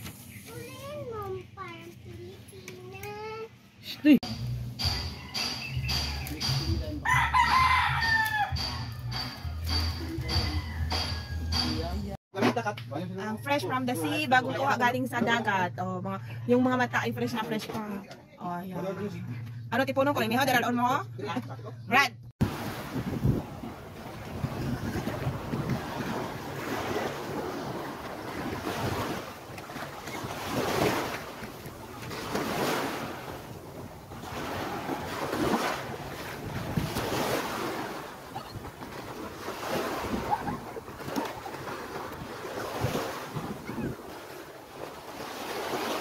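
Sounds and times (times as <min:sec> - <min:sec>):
wind buffeting microphone: 0:22.4 - 0:44.3
small waves breaking on shore: 0:22.4 - 0:46.0.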